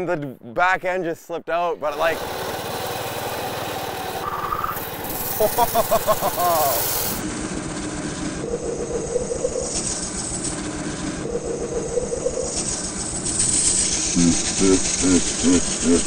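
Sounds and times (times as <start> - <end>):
road and wind noise: 1.9 - 5.8
small gas engine running: 1.9 - 16.0.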